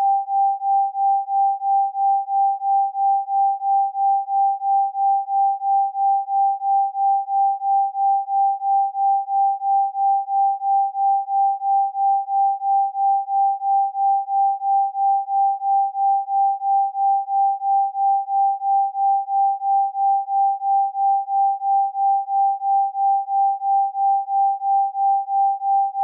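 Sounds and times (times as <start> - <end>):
pulsing sine tone: 0.0 - 26.0.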